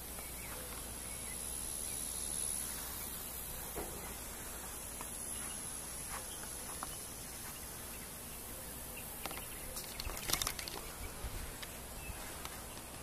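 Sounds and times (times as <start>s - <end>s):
steady low hiss: 0.0s - 13.0s
faint clicks and rustles: 9.2s - 13.0s.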